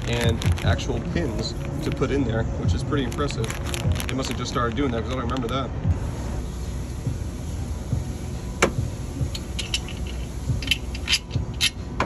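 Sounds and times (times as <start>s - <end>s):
low steady rumble: 0.0s - 12.0s
small metal parts clinking: 9.3s - 11.9s.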